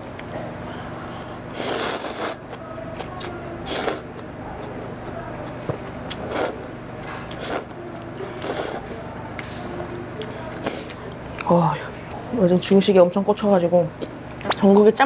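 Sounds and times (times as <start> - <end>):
person slurping noodles: 1.6 - 2.4, 3.7 - 4.0, 6.3 - 6.6, 8.4 - 8.8.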